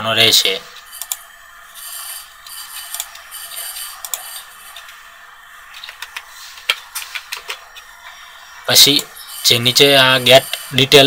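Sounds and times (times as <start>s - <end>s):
computer mouse moving: 0.8s - 5.0s, 5.7s - 8.2s, 8.8s - 11.0s.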